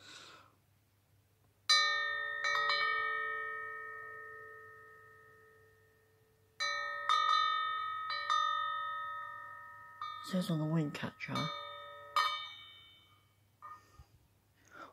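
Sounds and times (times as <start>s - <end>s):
cowbell wind chime ringing: 1.7s - 6.0s, 6.6s - 14.0s.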